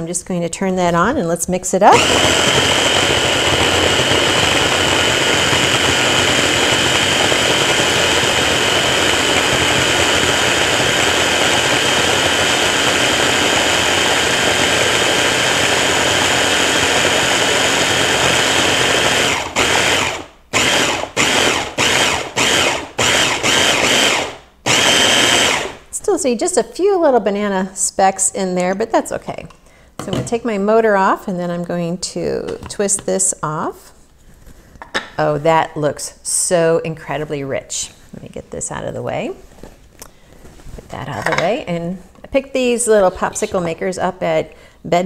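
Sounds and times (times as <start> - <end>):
stick blender whining: 1.9 - 25.8.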